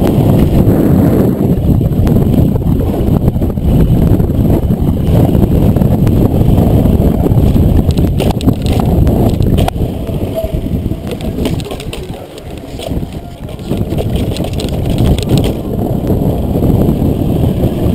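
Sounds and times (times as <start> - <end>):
bike rattling: 0.0 - 17.9
wind buffeting microphone: 0.0 - 17.9
tyre rumble over paving: 7.2 - 16.3.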